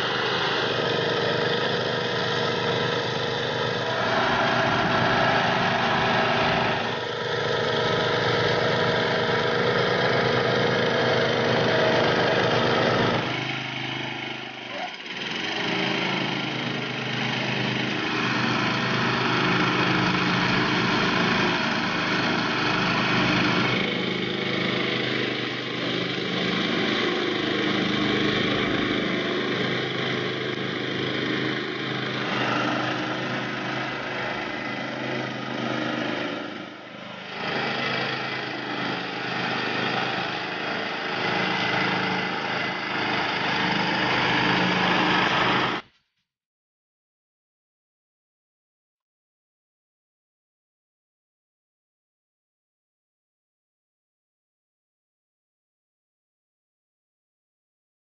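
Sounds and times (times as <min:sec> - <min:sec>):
lawn mower engine running: 0:00.0 - 0:45.9.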